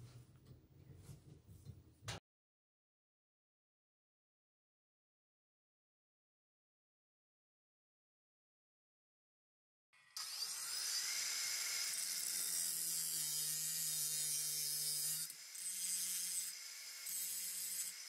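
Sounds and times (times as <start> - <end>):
angle grinder cutting steel: 10.0 - 18.0.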